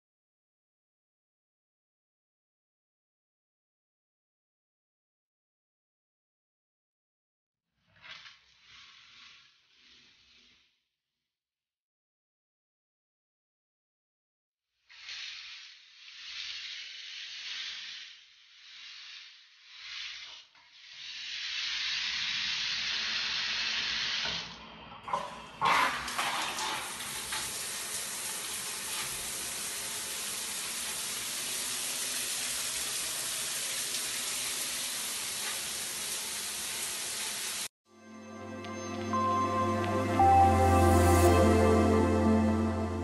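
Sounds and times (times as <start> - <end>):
shower water running: 14.9 - 37.7
water pouring onto tiled floor: 25.6 - 37.7.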